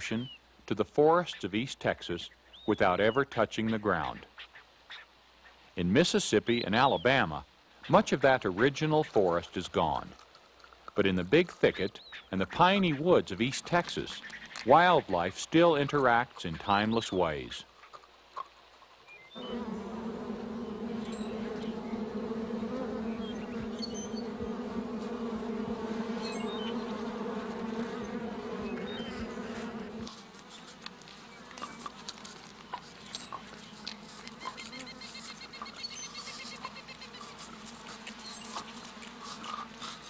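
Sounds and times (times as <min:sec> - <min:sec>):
honeybees buzzing: 0:19.4 - 0:40.0.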